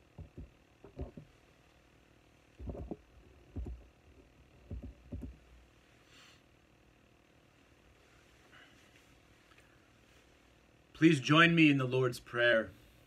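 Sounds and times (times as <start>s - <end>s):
faint room hiss: 0.0s - 13.0s
soft dull thumps: 0.1s - 1.3s, 2.6s - 3.9s, 4.6s - 5.5s
handling noise: 2.6s - 3.9s.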